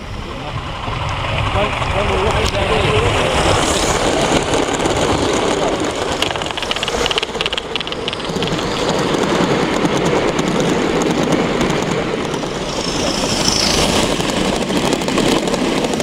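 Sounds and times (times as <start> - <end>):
model train wheels rushing on rails: 0.0 - 16.0
fast clicking: 3.9 - 16.0.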